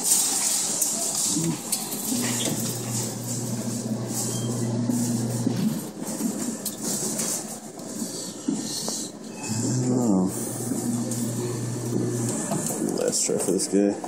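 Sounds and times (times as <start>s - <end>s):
claw crane motor humming: 2.1s - 5.8s, 10.3s - 12.9s.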